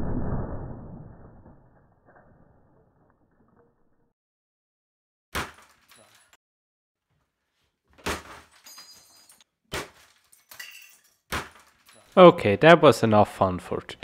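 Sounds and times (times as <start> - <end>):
breaking plastic clatter: 5.4 - 6.4, 7.9 - 12.2.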